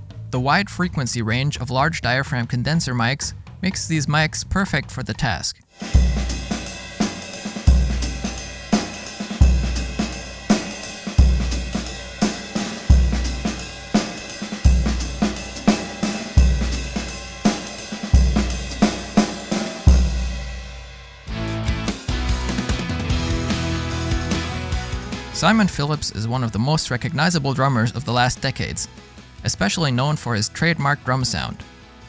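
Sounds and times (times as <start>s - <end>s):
bass drum booming: 5.8s - 25.2s
jazz drum kit groove: 5.8s - 29.9s.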